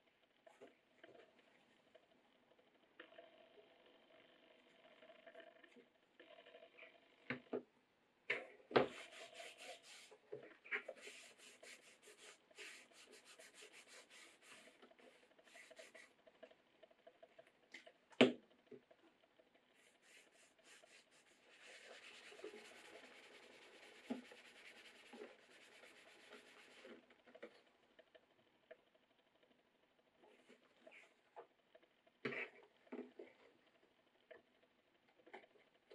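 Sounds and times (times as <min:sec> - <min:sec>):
cloth rubbing on leather: 0:08.9 - 0:10.2, 0:10.9 - 0:14.8, 0:19.8 - 0:26.9.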